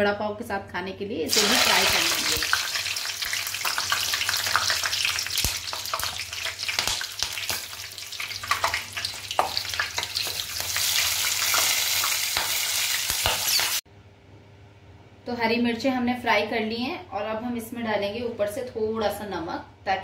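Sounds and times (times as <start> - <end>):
chillies sizzling in hot oil: 1.3 - 13.8.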